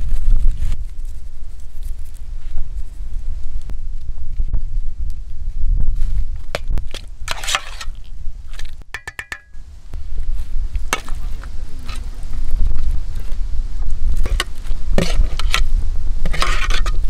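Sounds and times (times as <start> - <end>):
steady low rumble: 0.0 - 17.0
metal spoon scraping in pot: 7.3 - 8.0, 14.2 - 17.0
potatoes knocking onto platter: 9.0 - 9.5.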